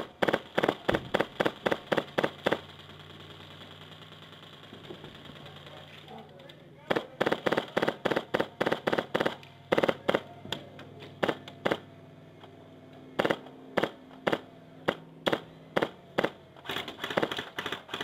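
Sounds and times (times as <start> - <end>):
airsoft rifle firing single shots: 0.0 - 5.7, 6.9 - 10.3, 13.2 - 18.0.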